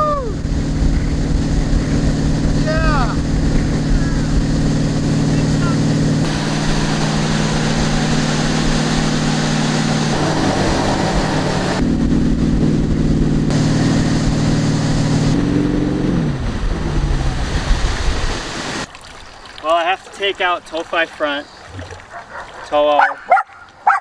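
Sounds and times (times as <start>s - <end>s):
boat engine running: 0.0s - 18.9s
churning wake water: 0.0s - 24.0s
wind on microphone: 16.3s - 18.8s.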